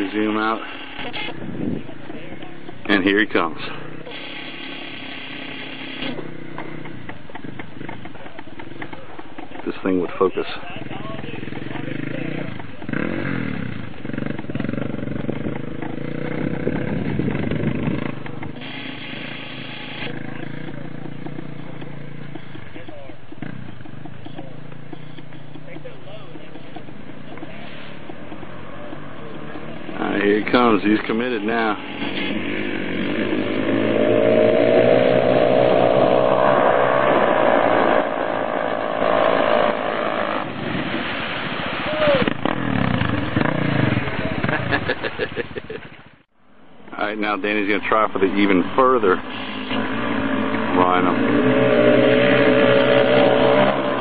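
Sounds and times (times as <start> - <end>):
atv engine running: 0.0 - 54.0
water spray hissing: 4.1 - 6.1, 18.6 - 20.1, 36.4 - 43.2.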